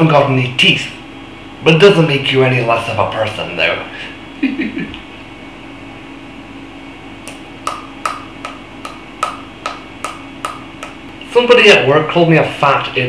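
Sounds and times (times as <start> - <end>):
low steady hum: 0.0 - 13.0
steady sharp clicks: 7.3 - 11.2.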